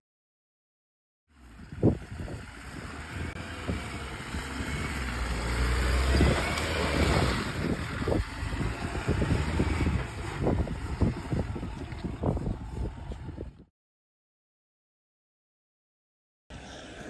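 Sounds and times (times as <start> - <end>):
vehicle engine under load: 1.3 - 13.7
sand and gravel crackling: 1.4 - 13.4.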